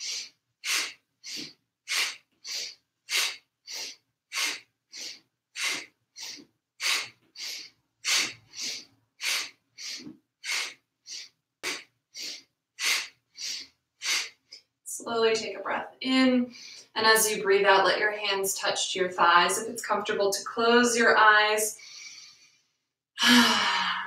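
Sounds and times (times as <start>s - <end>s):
forceful rhythmic breathing: 0.0s - 14.7s, 16.5s - 17.0s, 21.7s - 24.0s.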